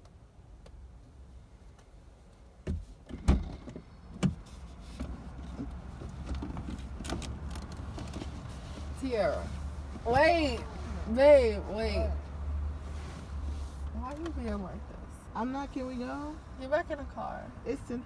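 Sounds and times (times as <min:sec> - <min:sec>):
car door clunk: 0:02.6 - 0:04.5
shuffling of passenger climbing out: 0:02.7 - 0:12.1.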